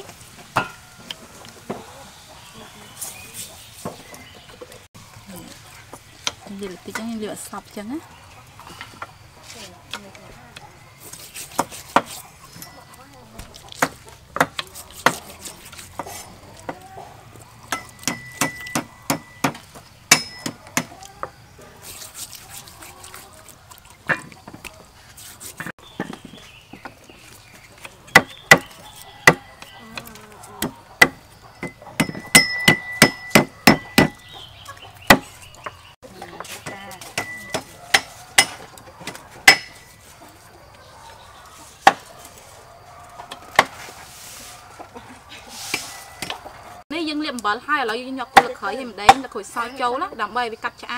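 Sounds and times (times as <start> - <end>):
knife chopping on wooden block: 11.4 - 12.2, 13.8 - 16.8, 17.7 - 21.3, 27.8 - 34.2, 35.1 - 35.3, 37.1 - 39.8
metallic ring of blade: 31.6 - 34.0.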